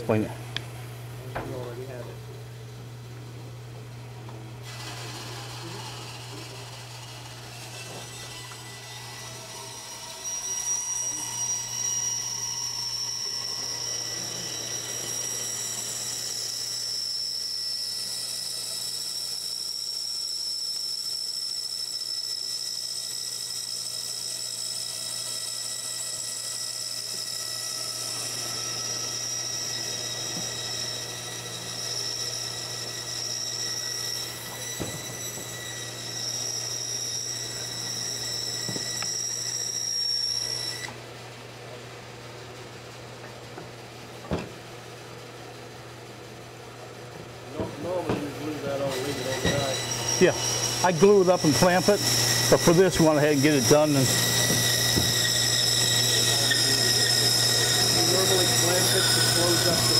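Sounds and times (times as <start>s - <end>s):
bandsaw cutting wood: 4.6s - 41.0s, 48.5s - 59.9s.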